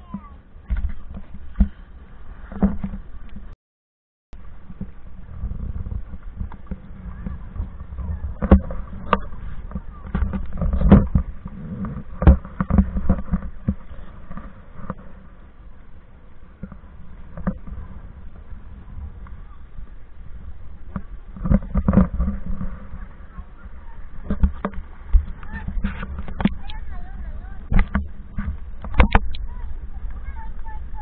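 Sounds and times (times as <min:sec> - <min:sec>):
wind rumble on microphone: 0:00.0 - 0:03.6, 0:04.3 - 0:31.0
scattered clicks and knocks: 0:05.8 - 0:15.2, 0:20.9 - 0:23.0, 0:24.2 - 0:26.8, 0:27.7 - 0:29.4.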